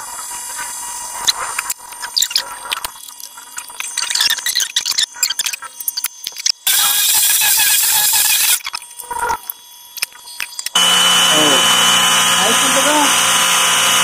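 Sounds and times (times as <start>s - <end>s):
pressure washer motor running: 6.7s - 8.6s, 10.8s - 14.0s.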